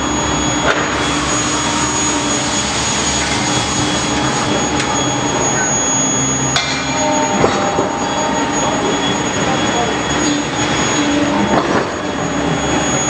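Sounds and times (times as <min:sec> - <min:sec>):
high-pitched whine: 0:00.0 - 0:13.0
machine hum: 0:00.0 - 0:13.0.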